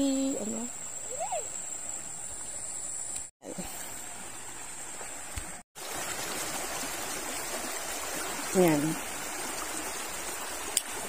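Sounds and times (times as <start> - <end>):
river water rushing: 3.7 - 11.0.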